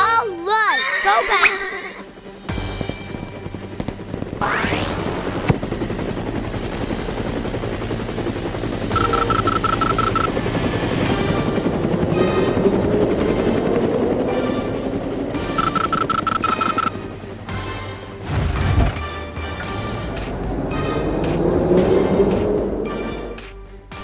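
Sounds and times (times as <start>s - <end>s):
helicopter rotor and engine drone: 0.0s - 24.0s
high beeps: 9.0s - 10.3s, 15.6s - 16.9s.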